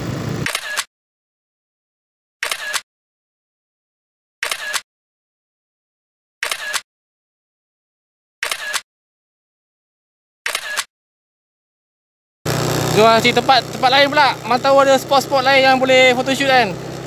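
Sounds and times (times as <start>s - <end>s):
camera shutter clicks: 0.4s - 0.9s, 2.4s - 2.8s, 4.4s - 4.8s, 6.4s - 6.8s, 8.4s - 8.8s, 10.5s - 10.9s.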